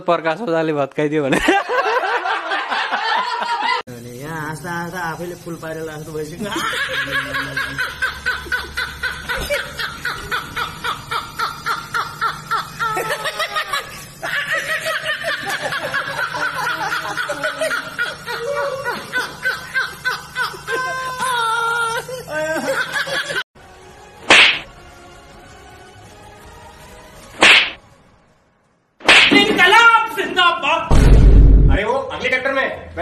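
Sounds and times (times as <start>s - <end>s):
man laughing hard: 6.5s - 23.4s
loud whoosh: 30.9s - 31.8s.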